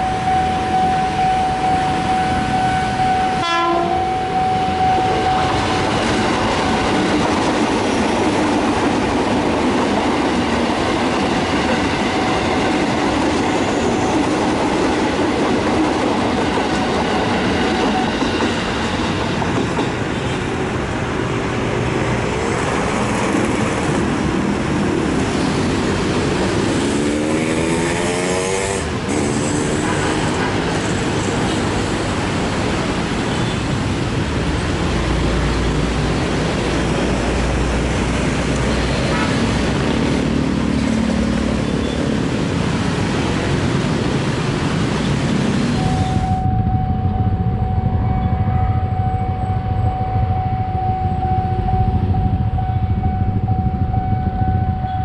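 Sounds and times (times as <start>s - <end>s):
steady tone: 0.0s - 7.3s, 45.7s - 55.0s
train rumbling past: 0.0s - 55.0s.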